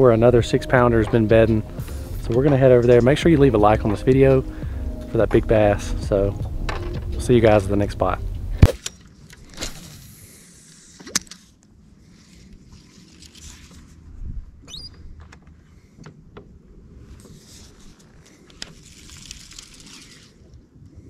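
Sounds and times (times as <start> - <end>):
soft rustling: 11.5 - 14.6, 17.0 - 20.5
short rising chirp: 14.7 - 15.0
fishing reel clicks: 18.6 - 20.4.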